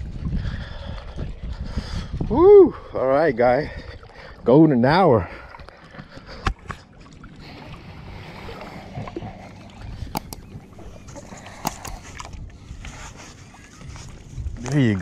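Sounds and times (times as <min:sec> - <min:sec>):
water sloshing from wading: 0:00.0 - 0:15.0
sharp clicks: 0:10.1 - 0:10.5.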